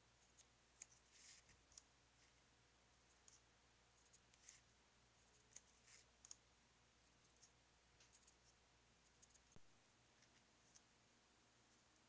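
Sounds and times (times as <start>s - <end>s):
marker pen scratching: 0.2s - 2.4s, 3.1s - 6.4s, 7.2s - 9.6s.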